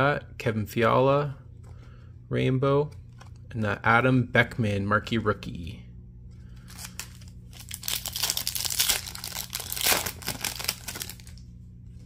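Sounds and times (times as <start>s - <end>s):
foil wrapper tearing and crinkling: 6.6s - 11.4s.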